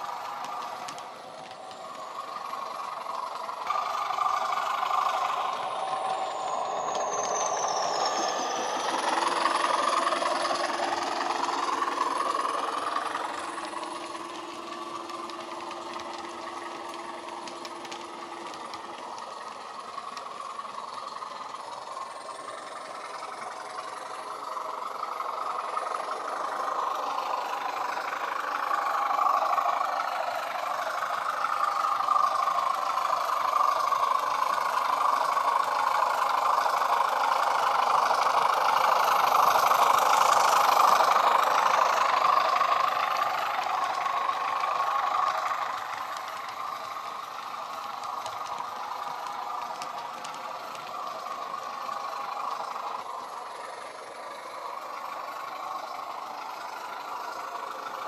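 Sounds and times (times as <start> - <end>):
diesel engine sound from small speaker: 0.0 - 58.0.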